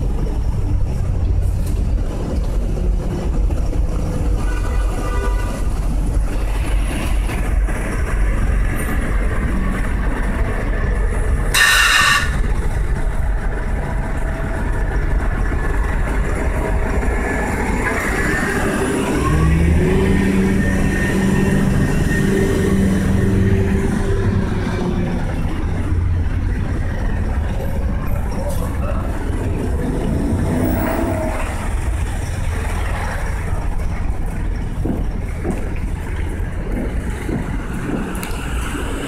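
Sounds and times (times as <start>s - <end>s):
bus passing close by: 0.0s - 39.0s
city street traffic: 0.0s - 39.0s
heavy vehicle engine drone: 0.0s - 39.0s
short high-pitched squeal: 11.6s - 12.4s.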